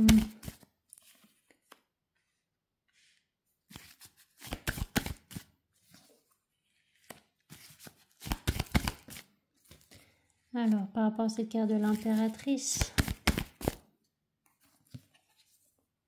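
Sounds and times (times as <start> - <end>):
cards flicking and slapping: 0.0 - 1.9, 3.7 - 5.5, 7.0 - 10.0, 12.7 - 13.9.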